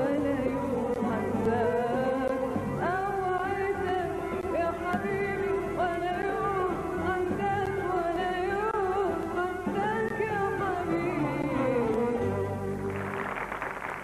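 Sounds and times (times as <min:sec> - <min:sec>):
woman singing: 0:00.0 - 0:12.6.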